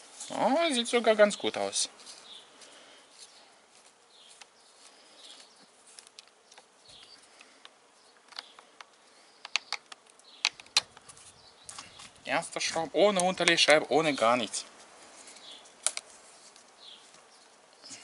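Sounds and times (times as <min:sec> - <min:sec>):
sharp clicks: 0:06.1 - 0:11.1.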